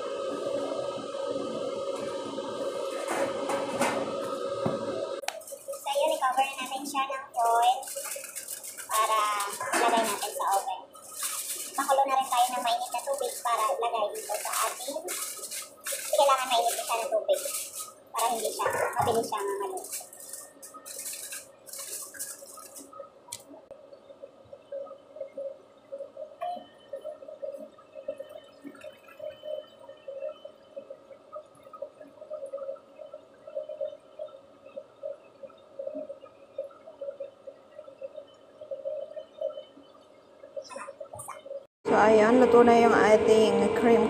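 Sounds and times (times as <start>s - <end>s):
water gurgling: 4.7s - 41.7s
aluminium foil crinkling: 5.2s - 23.0s.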